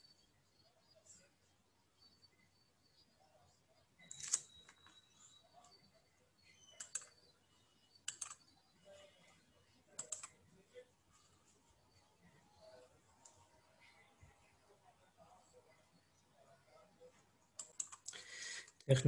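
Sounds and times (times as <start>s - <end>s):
sharp computer clicks: 4.0s - 5.0s, 6.7s - 7.2s, 8.0s - 8.5s, 9.9s - 10.4s, 17.6s - 18.8s.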